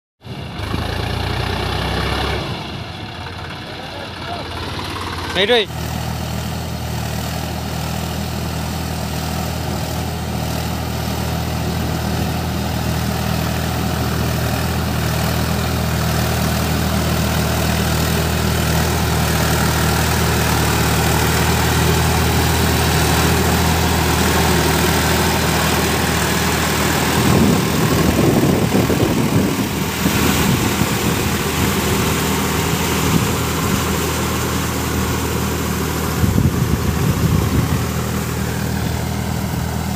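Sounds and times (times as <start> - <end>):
tractor diesel engine hum: 0.2 - 39.9
rough uneven noise: 13.4 - 39.9.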